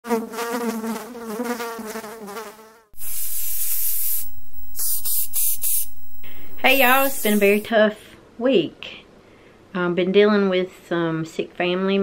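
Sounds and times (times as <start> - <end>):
loud steady hiss: 3.0 - 7.7
wavering buzzing tone: 3.0 - 7.7.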